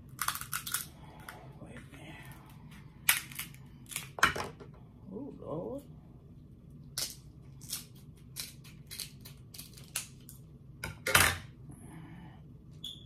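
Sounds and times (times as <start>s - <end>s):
crab shell cracking: 0.1s - 1.4s, 6.9s - 10.4s.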